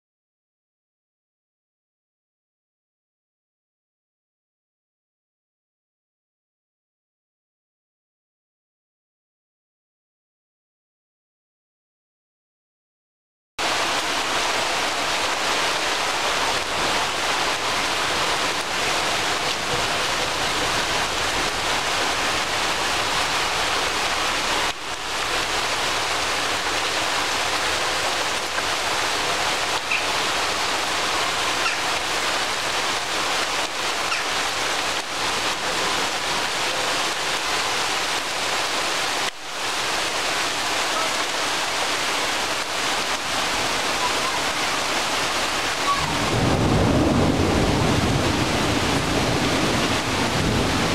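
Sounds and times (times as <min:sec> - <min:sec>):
rain pouring on foliage: 0:13.6 - 0:50.9.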